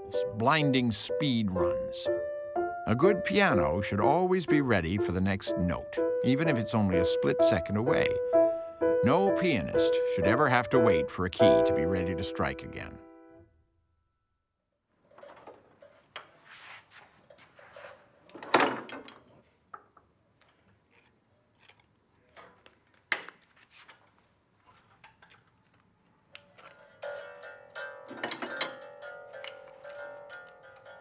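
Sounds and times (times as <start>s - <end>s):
piano wire scraping and clicking: 26.4s - 31.0s.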